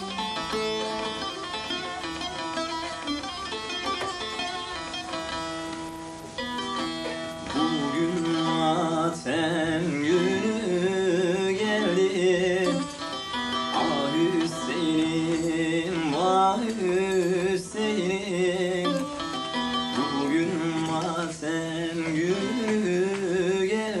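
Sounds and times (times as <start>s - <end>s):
saz playing: 0.0s - 24.0s
person singing ornamented melody: 7.4s - 24.0s.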